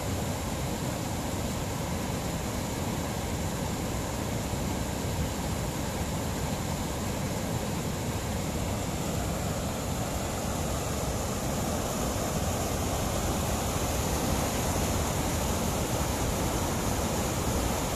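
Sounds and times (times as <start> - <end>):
water rushing down spillway: 0.0 - 17.9.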